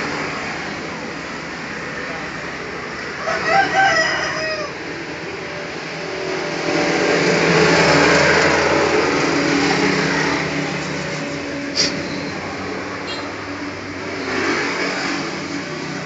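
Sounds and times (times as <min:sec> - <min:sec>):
vehicle engine running: 0:04.8 - 0:16.0.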